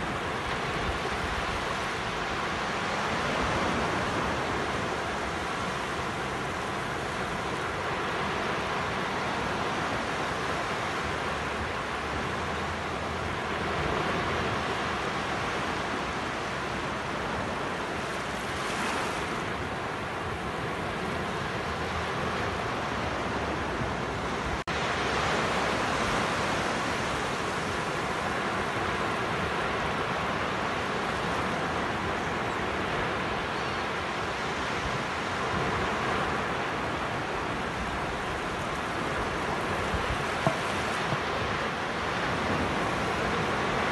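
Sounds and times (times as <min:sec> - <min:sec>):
surf breaking on beach: 0:35.3 - 0:43.9.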